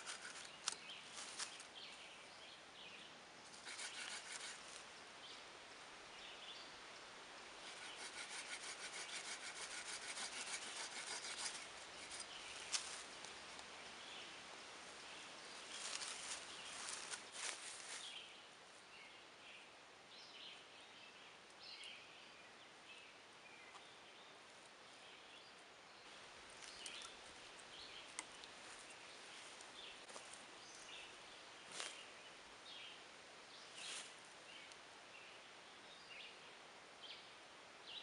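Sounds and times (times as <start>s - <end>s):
saw cutting wooden branch: 0.0s - 0.8s, 3.5s - 4.6s, 7.6s - 12.8s.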